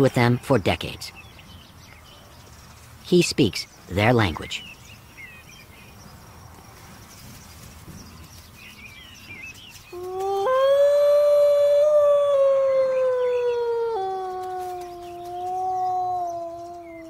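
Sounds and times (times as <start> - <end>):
man imitating wolf howl: 10.0 - 17.0
faint bird chirps: 11.9 - 17.0.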